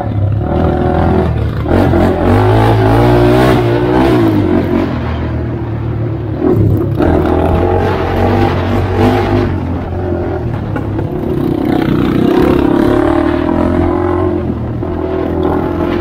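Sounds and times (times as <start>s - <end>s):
quad engine revving: 0.0s - 5.4s, 6.4s - 16.0s.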